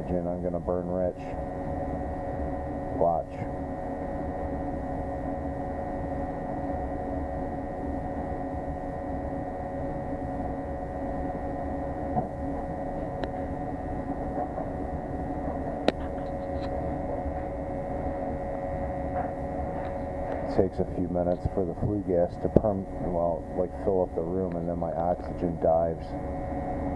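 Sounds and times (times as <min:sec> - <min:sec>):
gas burner humming and rushing: 0:00.0 - 0:26.9.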